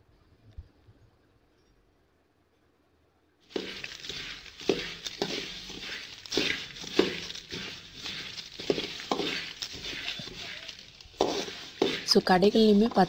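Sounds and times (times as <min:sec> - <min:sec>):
seeds rattling: 0:03.5 - 0:13.0
spoon scraping metal pan: 0:03.5 - 0:13.0.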